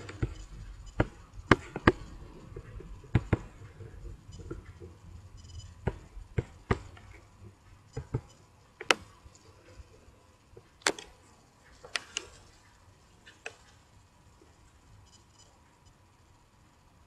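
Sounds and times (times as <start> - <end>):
keyboard and mouse clicks: 10.8 - 11.2.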